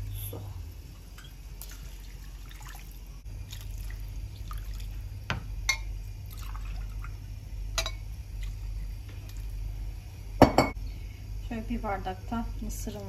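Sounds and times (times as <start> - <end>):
steady low hum: 0.0 - 13.0
water pouring into a pot: 0.8 - 5.1, 6.2 - 7.2.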